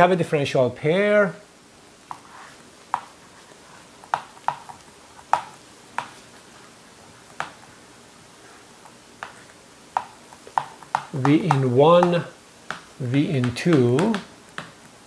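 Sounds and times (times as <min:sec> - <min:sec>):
faint marker scratching: 0:02.1 - 0:04.0
marker tapping on whiteboard: 0:02.9 - 0:03.2, 0:04.0 - 0:06.2, 0:07.4 - 0:07.6, 0:09.2 - 0:09.4, 0:10.0 - 0:14.8.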